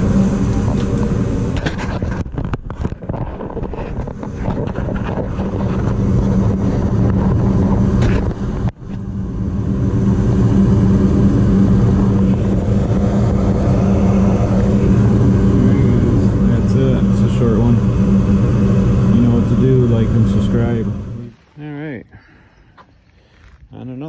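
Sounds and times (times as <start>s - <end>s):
gas furnace humming: 0.0s - 2.3s, 3.8s - 22.8s.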